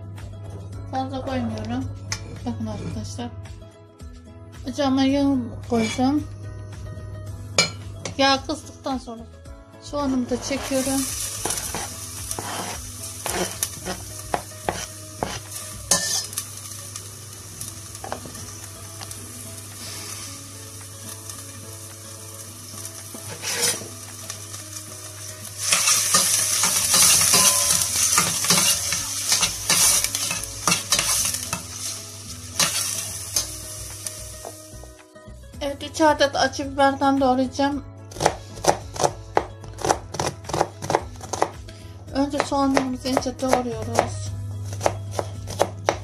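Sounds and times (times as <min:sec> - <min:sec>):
onions sizzling in oil: 0:10.4 - 0:34.9.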